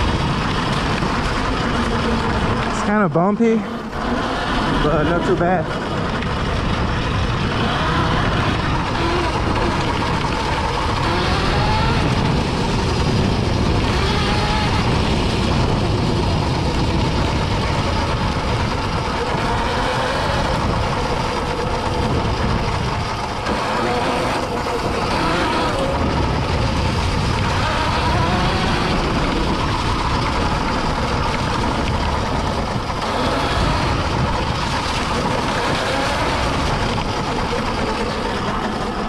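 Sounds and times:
wind on microphone: 0:00.0 - 0:03.0, 0:03.7 - 0:39.0
electric motor whine: 0:07.2 - 0:17.2, 0:18.2 - 0:39.0.

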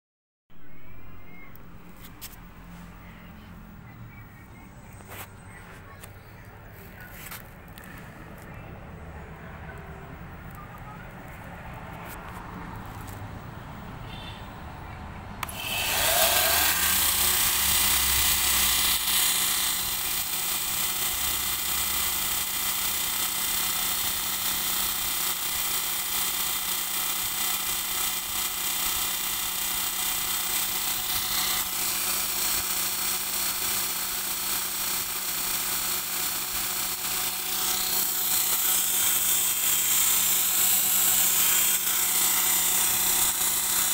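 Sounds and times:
motor switch click: 0:15.4 - 0:16.3
belt grinder motor whirring: 0:15.4 - 0:43.9.

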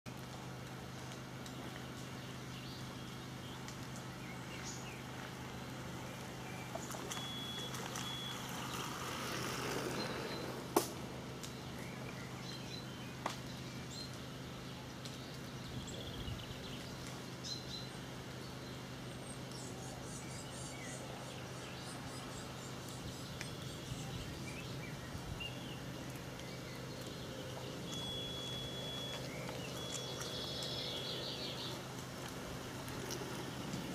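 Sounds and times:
steady low hum: 0:00.1 - 0:33.9
short high beeps: 0:07.2 - 0:08.4.

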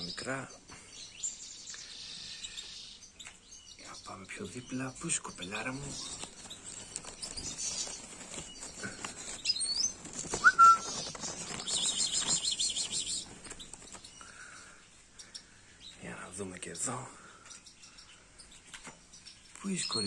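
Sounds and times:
goldfinches calling: 0:00.0 - 0:16.1
leaves rustling against wire cage: 0:04.3 - 0:14.5.

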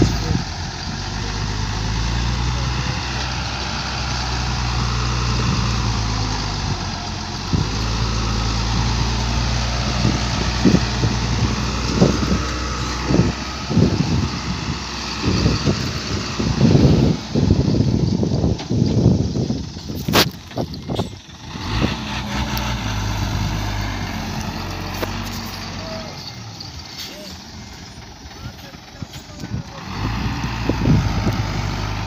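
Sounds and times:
truck diesel engine running: 0:00.0 - 0:32.0.

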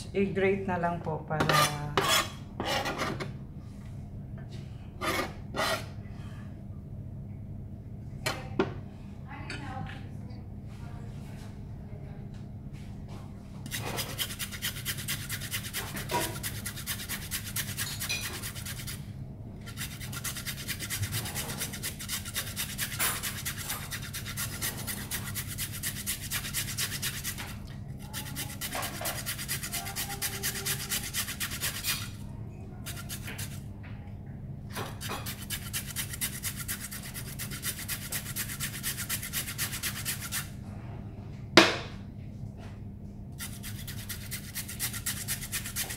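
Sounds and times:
carrot rasping on metal grater: 0:13.7 - 0:19.0, 0:19.6 - 0:32.2, 0:32.8 - 0:33.6, 0:34.8 - 0:40.5, 0:43.4 - 0:45.9.

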